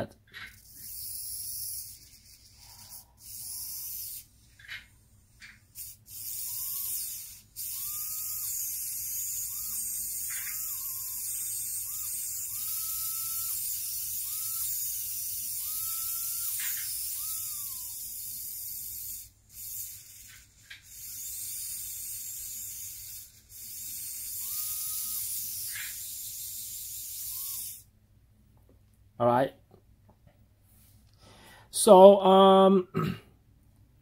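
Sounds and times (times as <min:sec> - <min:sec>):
tiny electric motor whirring: 0:00.4 - 0:04.8, 0:05.4 - 0:27.9.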